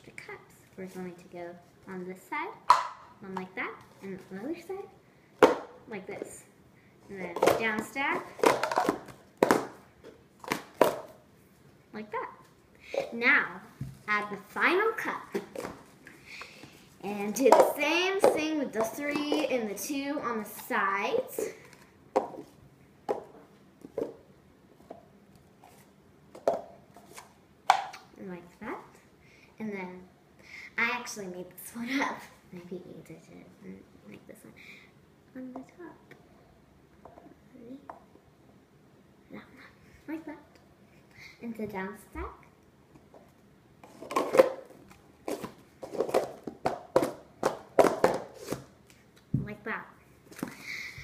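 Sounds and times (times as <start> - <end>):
plastic cups clacking on stone: 2.7 - 3.0, 8.3 - 9.7, 45.3 - 48.4.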